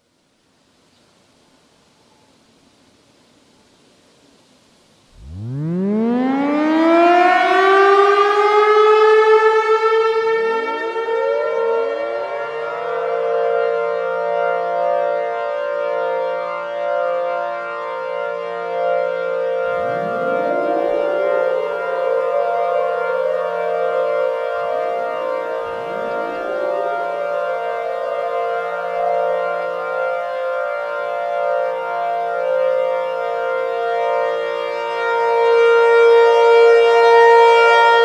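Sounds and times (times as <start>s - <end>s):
low pulsing tones: 5.1s - 8.8s, 19.4s - 31.5s
siren winding up to a wail: 5.2s - 16.0s, 18.4s - 38.0s.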